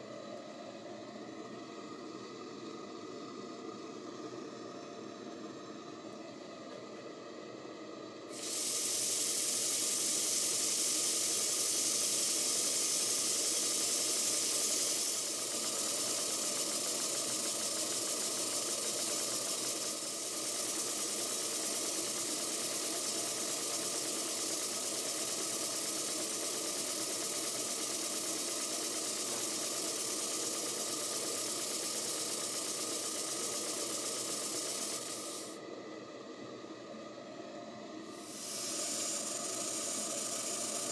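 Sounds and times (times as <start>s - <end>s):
steam hissing: 8.3s - 35.6s, 38.1s - 40.9s.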